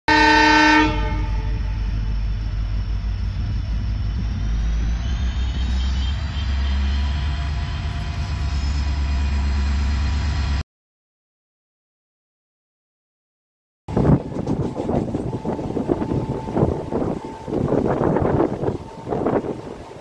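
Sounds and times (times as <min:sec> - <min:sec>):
locomotive horn: 0:00.1 - 0:02.5, 0:05.1 - 0:10.6, 0:13.9 - 0:20.0
locomotive rumbling: 0:00.1 - 0:10.6, 0:13.9 - 0:20.0
faint high whine: 0:01.3 - 0:10.2.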